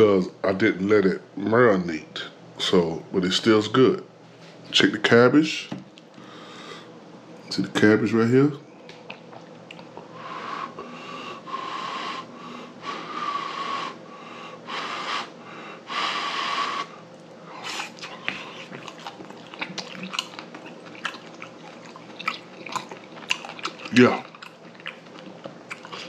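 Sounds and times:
man breathing noisily: 6.1 - 7.0, 10.1 - 18.7
chewing with mouth clicks: 8.8 - 10.2, 17.0 - 26.0.

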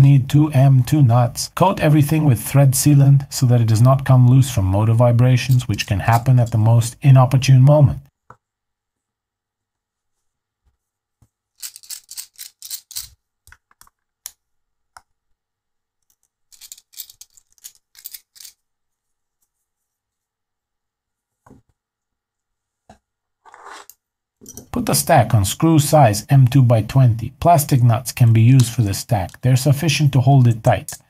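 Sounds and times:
small clicks and taps of handling parts: 11.2 - 15.2, 16.0 - 18.6.

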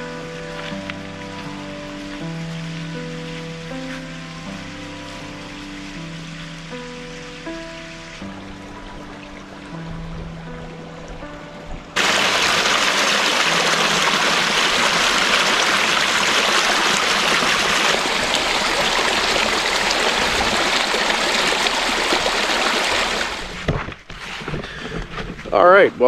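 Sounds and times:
music: 0.0 - 12.4
creek water rushing: 0.0 - 23.8.

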